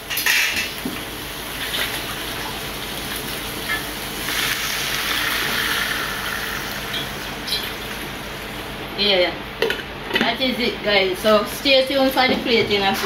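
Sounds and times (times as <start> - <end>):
water pouring into a pot: 4.2 - 7.3.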